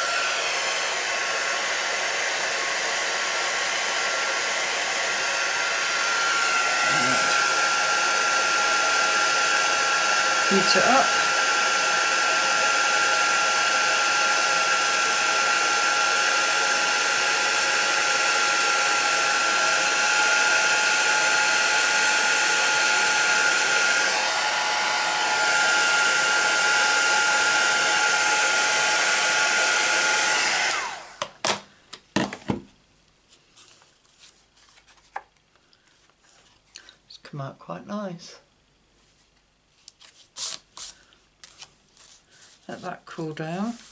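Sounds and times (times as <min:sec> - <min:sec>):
heat gun blowing: 0:00.0 - 0:31.3.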